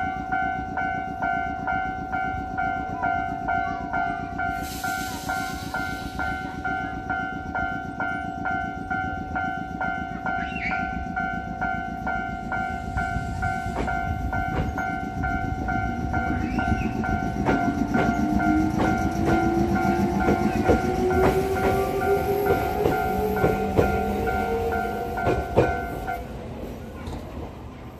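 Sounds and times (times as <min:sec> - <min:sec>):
level crossing warning bell: 0:00.0 - 0:26.3
electric train motor hum: 0:11.2 - 0:26.9
train wheel clicks: 0:12.8 - 0:26.2.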